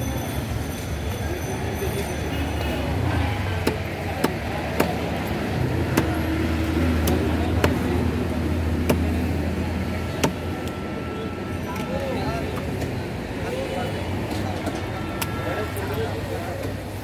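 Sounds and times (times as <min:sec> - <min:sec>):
knife chopping fish on wood block: 0:03.6 - 0:05.1.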